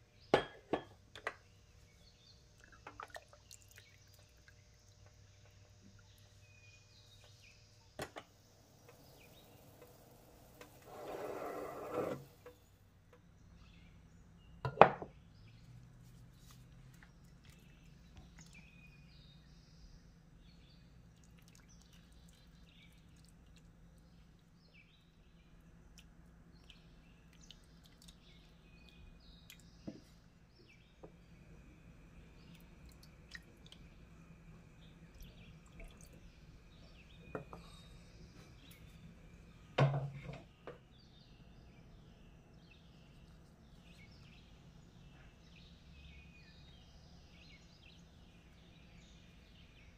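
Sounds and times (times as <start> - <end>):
faint low hum: 0.0 - 49.9
scraping rustle: 10.6 - 12.5.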